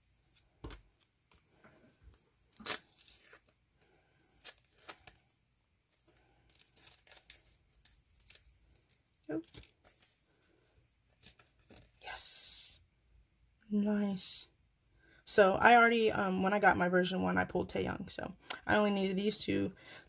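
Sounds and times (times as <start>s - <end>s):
plastic and tape tearing: 2.5s - 3.6s, 4.3s - 5.3s, 6.5s - 8.9s
plastic crinkling: 5.9s - 10.2s.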